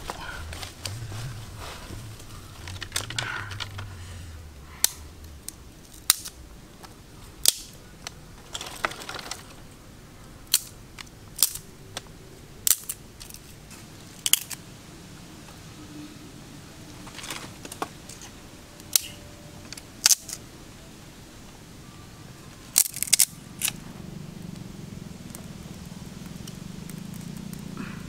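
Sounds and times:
twigs snapping: 0.0s - 9.6s, 10.4s - 14.6s, 17.0s - 20.4s, 22.7s - 23.8s, 24.5s - 27.8s
sticks rustling: 0.0s - 9.7s, 16.9s - 20.5s, 22.5s - 23.9s.

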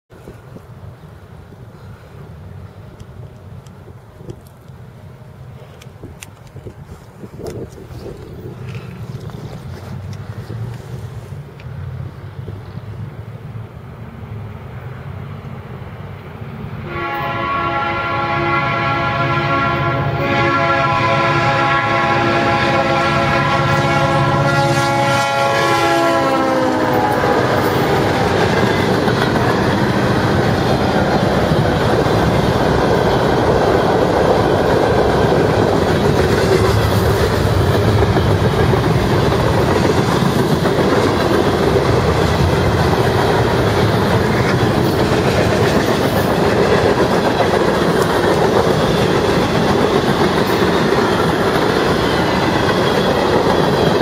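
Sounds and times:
freight train cars rolling: 0.1s - 54.0s
train horn chord: 16.8s - 28.0s.

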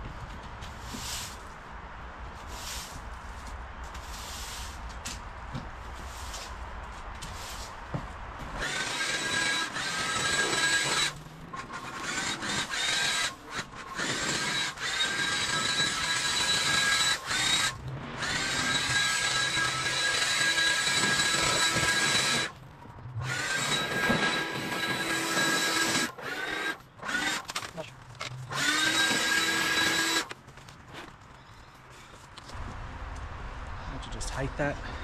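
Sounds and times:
leaf blower whining: 8.6s - 22.6s, 23.2s - 27.8s.

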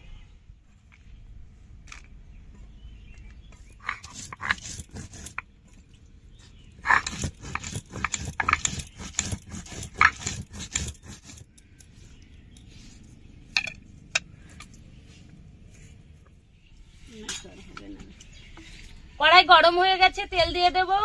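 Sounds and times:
spices scraping and crunching: 3.6s - 15.0s.

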